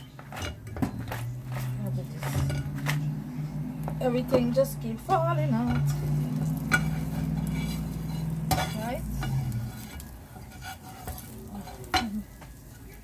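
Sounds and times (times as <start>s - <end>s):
light sizzle: 0.0s - 13.0s
spatula scraping a frying pan: 0.0s - 13.0s.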